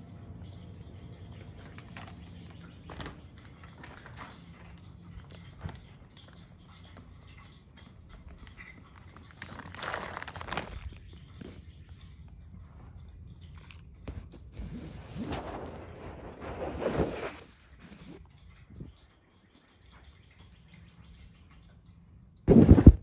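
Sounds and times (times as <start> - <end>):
fabric brushing microphone: 14.5 - 18.2, 22.5 - 23.0.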